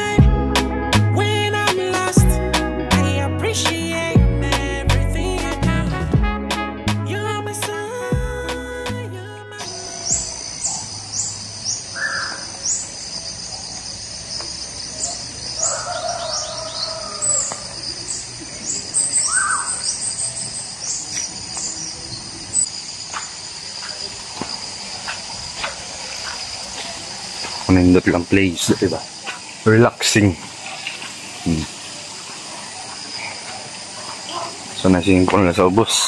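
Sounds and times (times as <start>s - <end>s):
high insect drone: 9.4s - 36.0s
bird calls: 9.6s - 36.0s.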